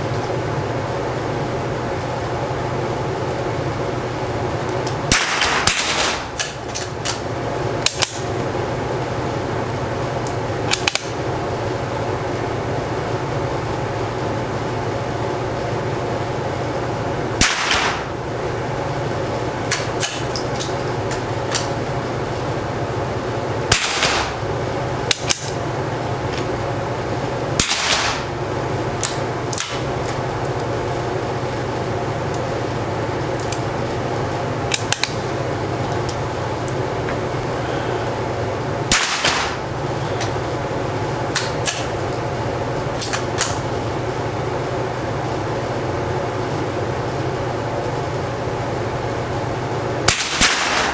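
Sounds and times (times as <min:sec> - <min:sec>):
steady background hum: 0:00.0 - 0:50.9
rifle shots with echo: 0:05.1 - 0:06.4, 0:17.4 - 0:18.1, 0:23.7 - 0:24.4, 0:27.6 - 0:28.3, 0:38.9 - 0:39.6, 0:50.1 - 0:50.9.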